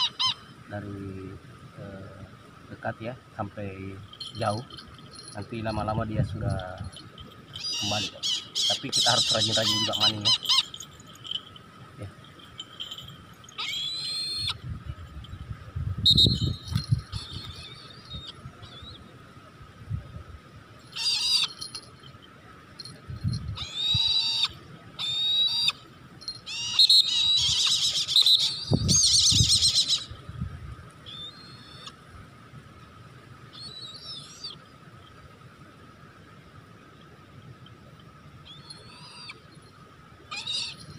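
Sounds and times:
bird of prey calling: 0.0 - 0.8, 4.0 - 11.6, 12.3 - 14.6, 16.1 - 19.1, 20.9 - 21.8, 23.4 - 30.3, 31.0 - 32.0, 33.5 - 34.7, 38.4 - 39.5, 40.3 - 40.9.

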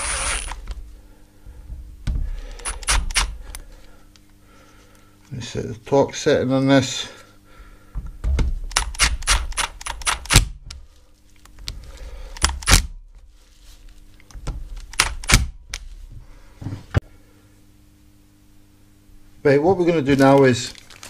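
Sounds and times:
drill clutch ratcheting clicks: 0.0 - 0.6, 2.6 - 3.3, 8.7 - 10.4
drill motor running: 0.0 - 0.6.

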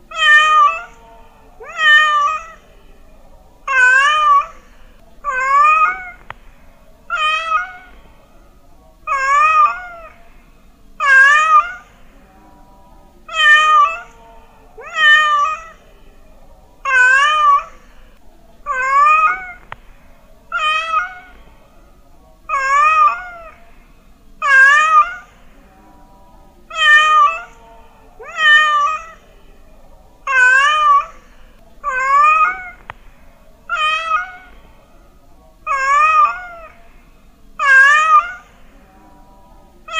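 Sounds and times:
cat meowing: 0.1 - 1.0, 1.6 - 2.7, 3.7 - 4.6, 5.2 - 6.4, 7.1 - 8.0, 9.1 - 10.2, 11.0 - 12.0, 13.3 - 14.2, 14.8 - 15.8, 16.8 - 17.8, 18.7 - 19.8, 20.5 - 21.4, 22.5 - 23.6, 24.4 - 25.3, 26.7 - 27.6, 28.2 - 29.3, 30.2 - 31.2, 31.8 - 33.0, 33.7 - 34.6, 35.6 - 36.8, 37.6 - 38.6.

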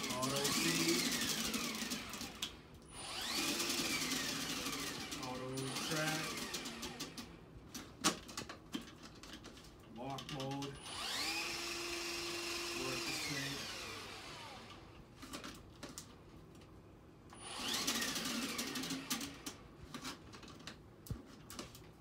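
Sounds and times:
drain snake motor whining: 0.0 - 7.3, 10.8 - 14.8, 17.4 - 19.5.

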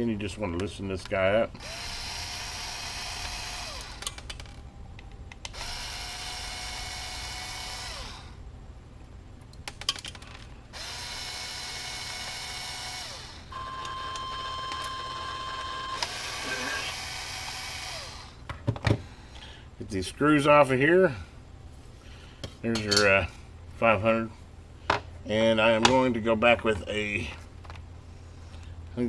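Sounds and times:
electric screwdriver whining: 1.6 - 4.2, 5.5 - 8.3, 10.8 - 18.4.

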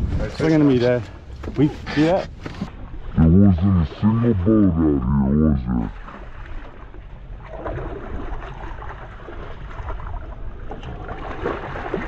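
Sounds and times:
wind and water rushing: 0.0 - 12.0
fish splashing at the surface: 7.4 - 12.0.

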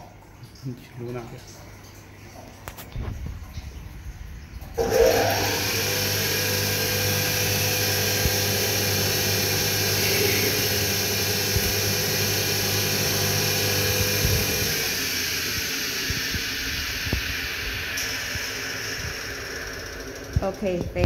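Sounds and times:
lathe motor hum and hiss: 4.8 - 20.8.

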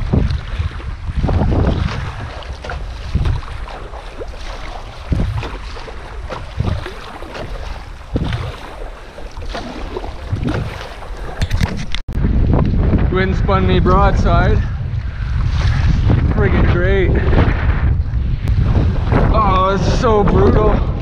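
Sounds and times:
choppy water lapping: 0.0 - 21.0
strong wind gusting on microphone: 0.0 - 21.0.

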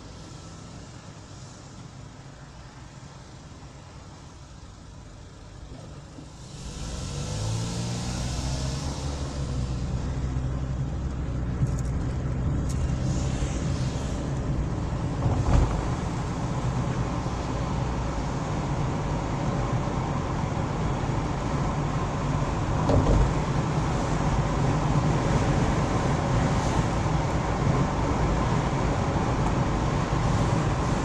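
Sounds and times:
road noise: 0.0 - 31.0
car engine accelerating: 6.4 - 25.4
brief thump: 15.2 - 16.0.

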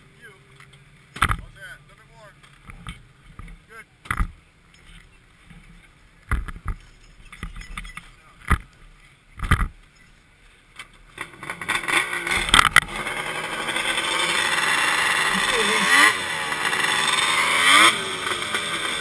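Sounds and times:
snowmobile engine running: 11.2 - 19.0.

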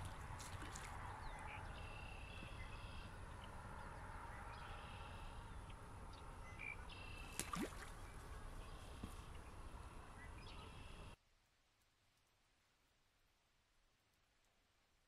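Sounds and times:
birds singing: 0.0 - 11.2
low rumble of wind: 0.0 - 15.0.

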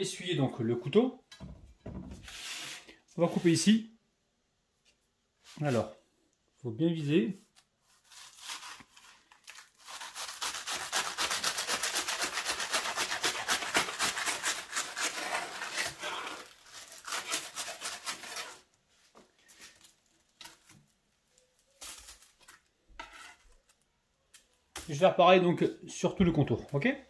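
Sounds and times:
knife sawing through pastry: 7.9 - 18.7.

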